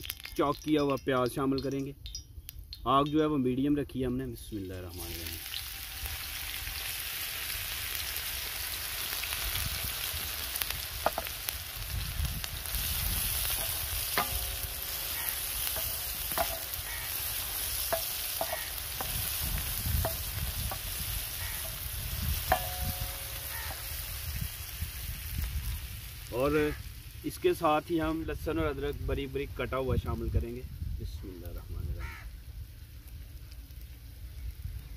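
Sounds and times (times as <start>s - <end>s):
onion sizzling in oil: 4.6s - 34.9s
spatula tapping on pan: 13.5s - 19.3s, 20.0s - 23.8s.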